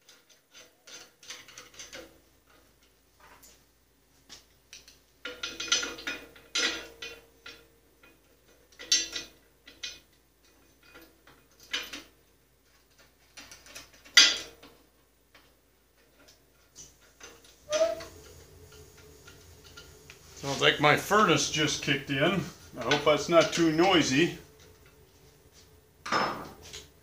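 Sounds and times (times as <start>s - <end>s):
metal parts clinking and rattling: 0.0s - 3.0s, 4.7s - 20.6s.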